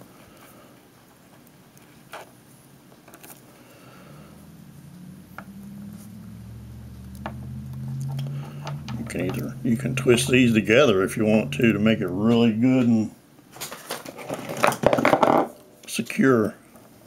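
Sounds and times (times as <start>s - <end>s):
low hum: 3.6s - 13.2s.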